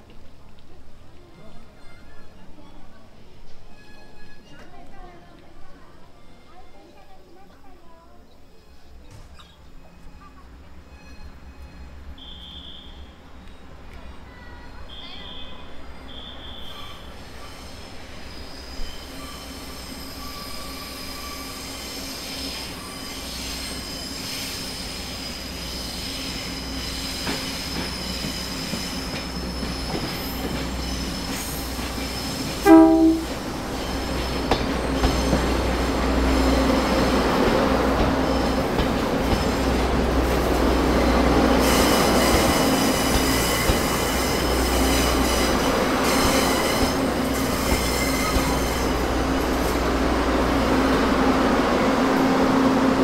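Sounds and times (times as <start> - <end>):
train running noise: 0.0 - 53.0
high wheel squeal: 14.9 - 37.4, 40.5 - 49.8
train horn blast: 32.6 - 33.5.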